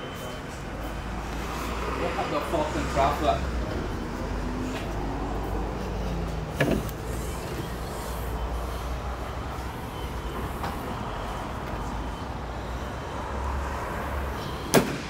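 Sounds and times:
car engine idling: 3.4 - 13.1.

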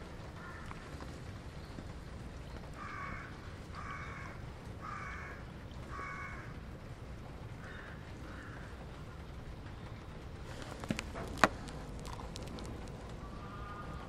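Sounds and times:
low background rumble: 0.0 - 14.0
crow cawing: 0.4 - 0.8, 2.8 - 6.5, 7.6 - 8.8, 13.3 - 14.0.

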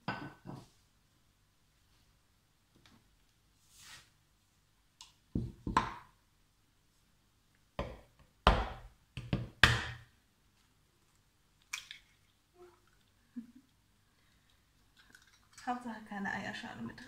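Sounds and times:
egg cracking: 11.6 - 13.2, 14.2 - 15.6.

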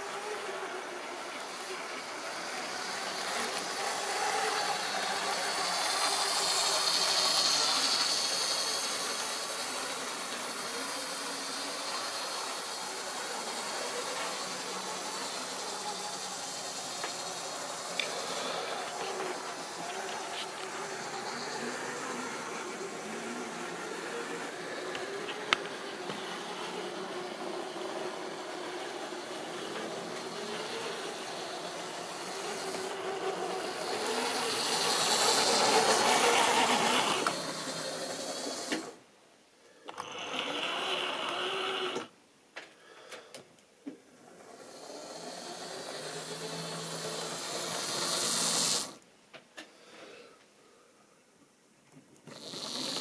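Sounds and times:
model train motor whirring: 0.0 - 39.0, 39.8 - 42.2, 44.1 - 49.0, 52.2 - 53.0
wheels rattling over track: 0.0 - 39.0.

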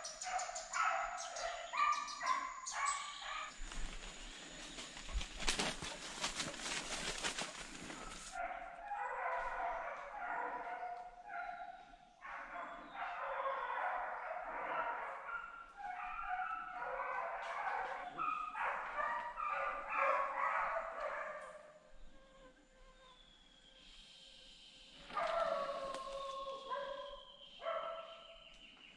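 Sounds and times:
rustling and crackling: 3.5 - 8.4
dogs baying and yelping: 5.7 - 21.4.

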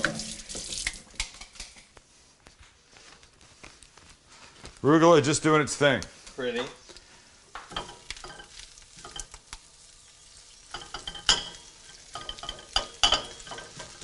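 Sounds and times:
faint oil sizzle: 0.0 - 1.4, 5.8 - 14.0
tongs clicking and scraping pan: 7.6 - 14.0.

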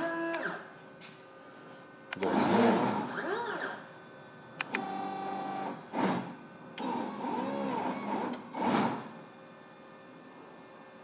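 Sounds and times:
stepper motor whine: 2.1 - 9.2.

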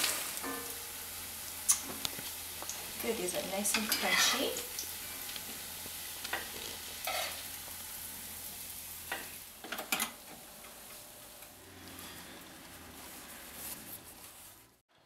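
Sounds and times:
oil sizzling in a skillet: 0.0 - 14.8.

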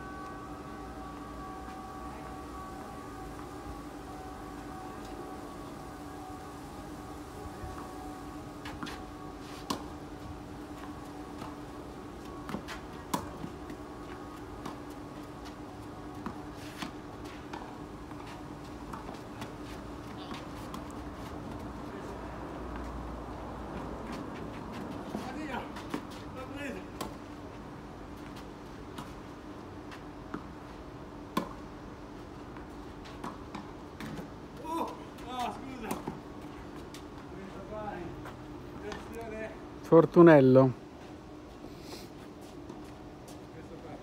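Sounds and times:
steady hum: 0.0 - 44.0
tennis balls struck by rackets: 12.4 - 13.8.

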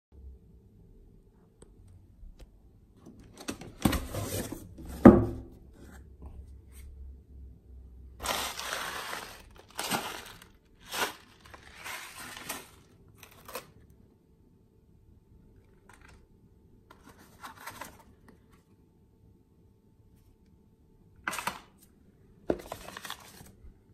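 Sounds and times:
plastic bag crinkling: 8.2 - 13.8.

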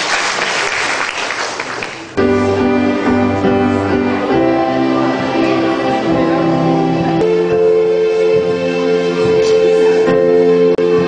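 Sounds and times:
audience applauding: 0.0 - 2.2
slow instrumental music: 2.2 - 11.0.

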